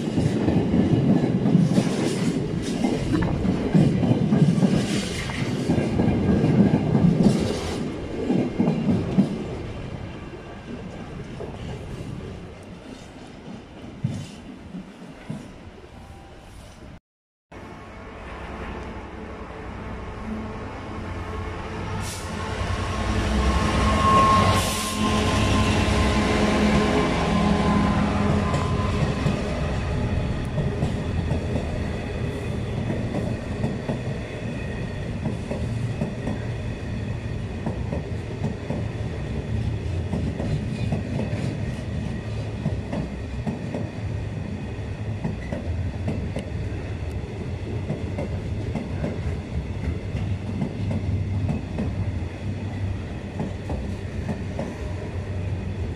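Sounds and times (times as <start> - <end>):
train wheels clattering on rails: 0.0 - 9.6, 24.0 - 55.1
diesel locomotive engine: 17.6 - 55.9.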